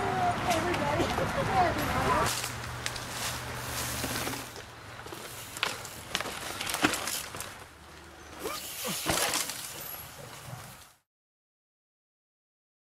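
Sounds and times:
bike wheels knocking over rocks: 3.8s - 7.7s, 8.3s - 10.5s.

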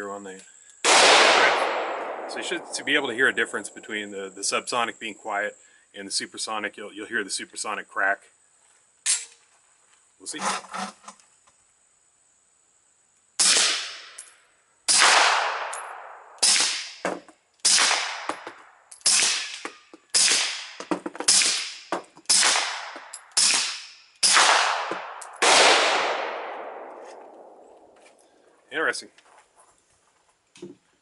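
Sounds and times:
bullet crack: 0.8s - 3.6s, 13.4s - 14.3s, 14.9s - 28.0s
suppressed pistol shots with echo: 0.9s - 3.6s, 13.4s - 14.2s, 14.9s - 17.0s, 17.6s - 18.4s, 20.2s - 28.0s.

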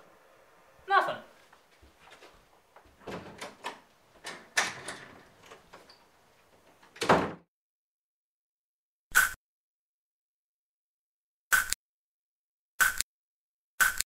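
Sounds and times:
door clicks and knocks: 2.1s - 7.4s
door slamming thud: 6.9s - 7.4s.

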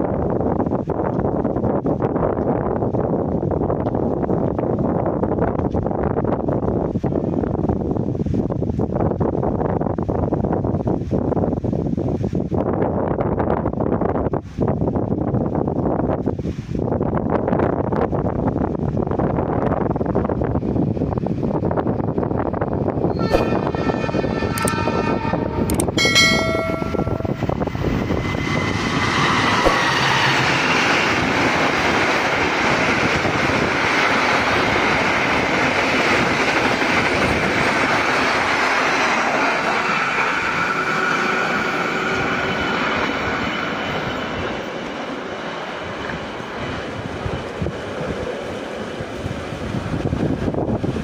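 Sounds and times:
train passing at speed: 0.0s - 51.0s
train horn blast: 23.1s - 27.6s.

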